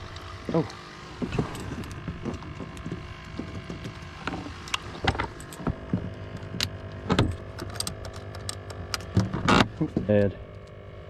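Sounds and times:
steady low hum: 0:00.0 - 0:11.0
knocks and clicks on boat deck: 0:00.5 - 0:07.9, 0:09.0 - 0:10.3.

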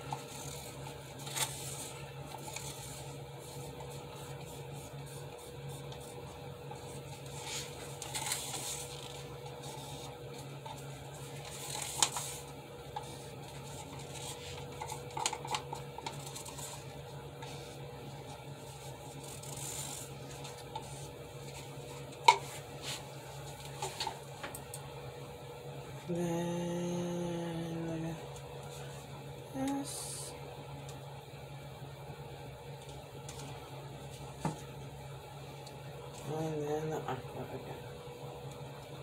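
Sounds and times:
steady low hum: 0:00.0 - 0:39.0
person humming a note: 0:26.1 - 0:28.2.

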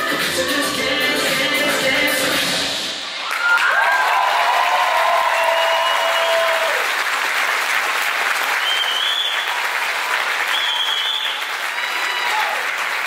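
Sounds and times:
audience applauding: 0:03.2 - 0:13.0.

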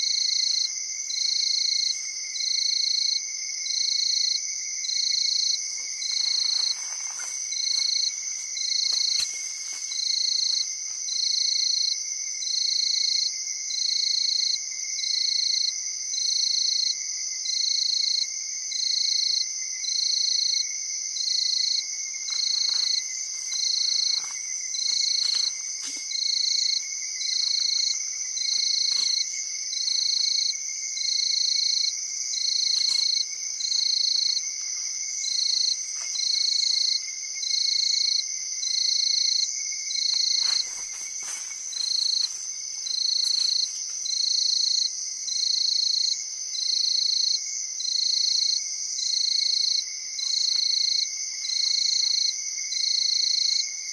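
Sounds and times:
insects trilling: 0:00.0 - 0:53.9
loud pulsing insect call: 0:00.0 - 0:53.9
faint rustles: 0:05.6 - 0:10.0, 0:40.3 - 0:44.1.

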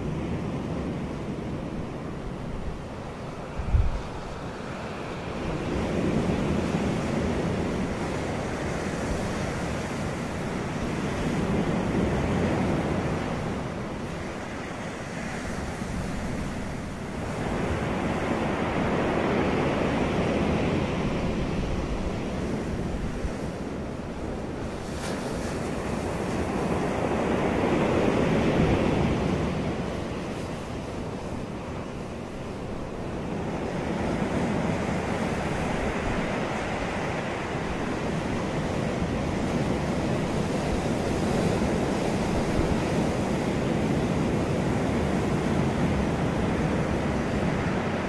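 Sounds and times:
ocean surf breaking: 0:00.0 - 0:48.0.

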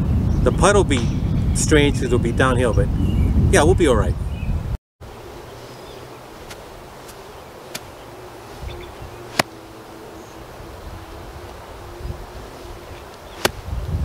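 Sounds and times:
golf club striking ball: 0:09.3 - 0:09.6, 0:13.3 - 0:13.6.

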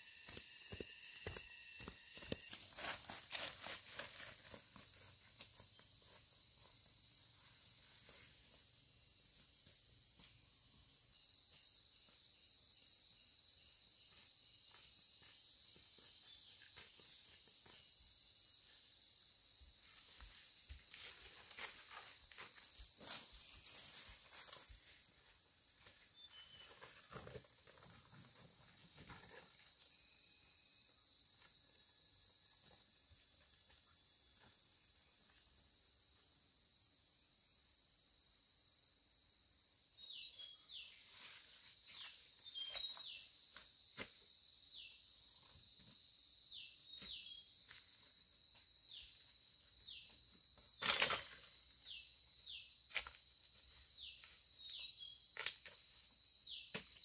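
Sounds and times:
insect chorus drone: 0:00.0 - 0:57.0.

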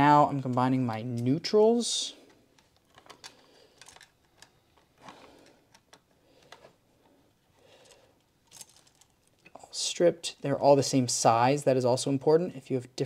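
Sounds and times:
wires clicking and scraping: 0:02.1 - 0:10.5.

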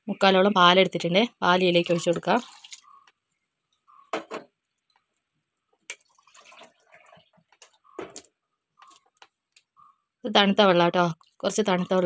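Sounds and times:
faint kitchenware clattering: 0:03.8 - 0:04.6
kitchenware knocks and clicks: 0:04.1 - 0:04.5.

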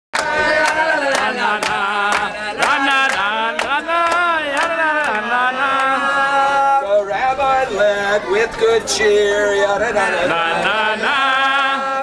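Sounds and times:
hand claps: 0:00.2 - 0:06.0
people singing: 0:00.2 - 0:12.0.

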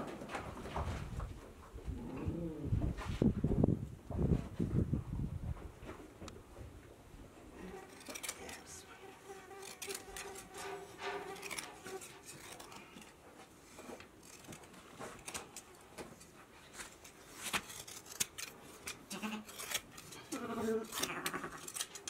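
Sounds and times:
hand shears snipping fleece: 0:07.6 - 0:22.0.

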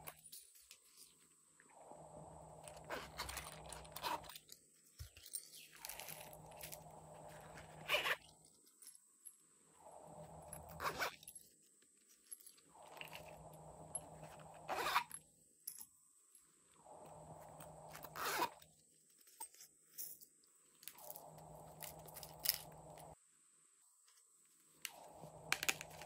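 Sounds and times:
soft handling noise: 0:00.0 - 0:01.6, 0:02.5 - 0:09.4, 0:24.0 - 0:26.0
zippers being pulled open: 0:02.6 - 0:04.5, 0:05.1 - 0:08.5, 0:10.2 - 0:11.4, 0:12.8 - 0:15.1, 0:17.5 - 0:18.7.

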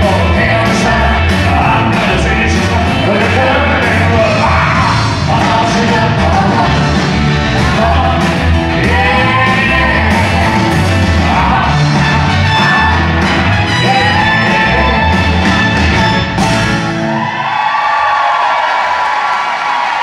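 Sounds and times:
man singing into microphone: 0:00.0 - 0:13.1, 0:13.7 - 0:15.2
drums playing loudly: 0:00.0 - 0:17.2
rock and roll band playing: 0:00.0 - 0:17.9.

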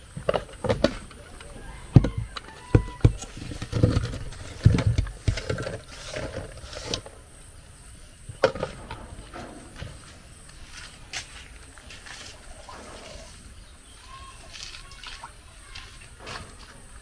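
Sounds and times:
knocks and scrapes: 0:00.1 - 0:07.3, 0:08.3 - 0:13.6, 0:15.7 - 0:17.0
thuds: 0:01.9 - 0:06.6, 0:08.4 - 0:10.2.

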